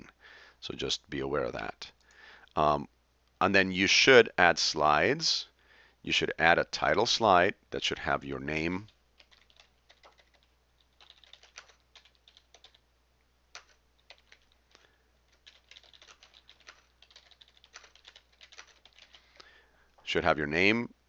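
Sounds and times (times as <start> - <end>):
typing on computer keyboard: 8.8 - 12.8, 13.5 - 14.7, 15.3 - 19.4.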